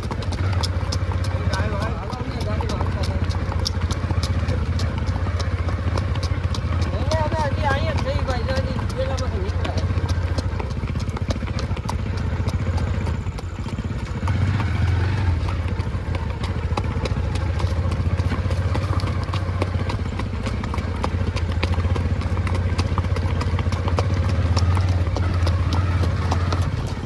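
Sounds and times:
horse hooves clip-clopping on dirt: 0.0s - 27.0s.

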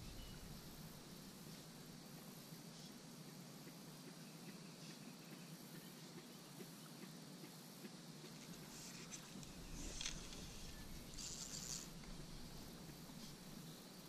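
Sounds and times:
faint low background noise: 0.0s - 14.0s
fly line swishing: 8.4s - 13.7s.

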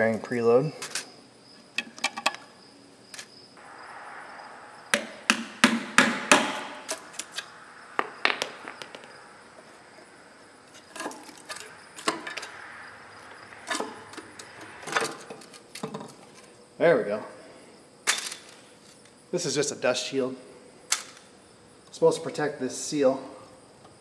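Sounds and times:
metal-on-metal knocks: 8.0s - 9.2s.

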